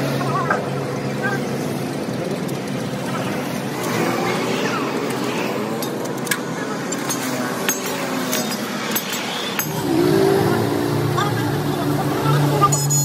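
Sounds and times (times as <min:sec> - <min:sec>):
noisy background: 0:00.0 - 0:13.0
light metallic clinks: 0:05.8 - 0:09.9.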